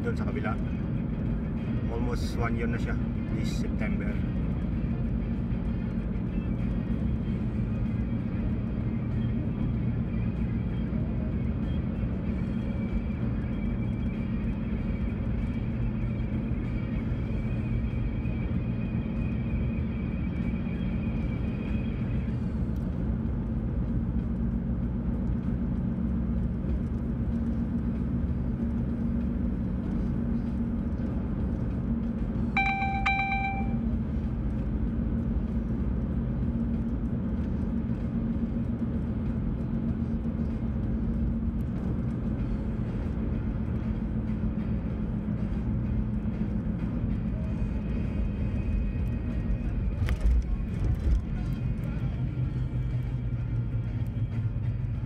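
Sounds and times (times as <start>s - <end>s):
road and engine rumble in car: 0.0s - 55.0s
beep: 32.6s - 33.8s.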